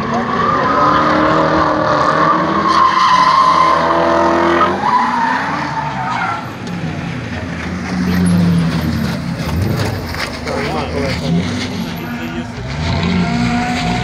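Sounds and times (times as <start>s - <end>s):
car engine revving high: 0.0s - 5.8s, 7.7s - 14.0s
tyres squealing and skidding: 0.0s - 14.0s.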